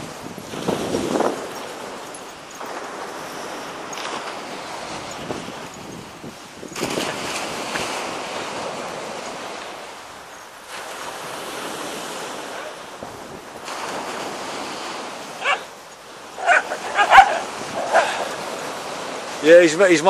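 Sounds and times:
surf rushing: 0:00.0 - 0:20.0
wind gusting on microphone: 0:00.0 - 0:20.0
dog yelping: 0:15.4 - 0:15.7, 0:16.3 - 0:18.4.

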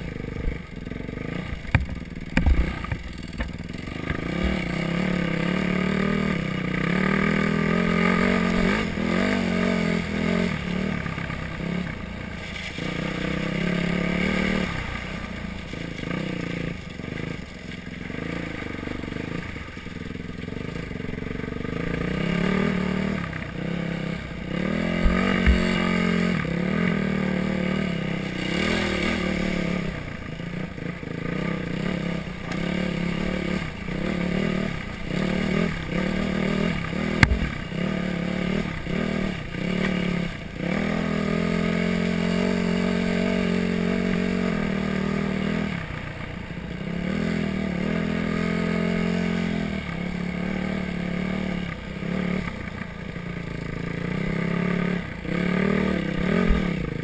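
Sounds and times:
dirt bike engine revving: 0:00.0 - 0:57.0
sharp knocks: 0:01.7 - 0:03.5, 0:37.2 - 0:37.6.

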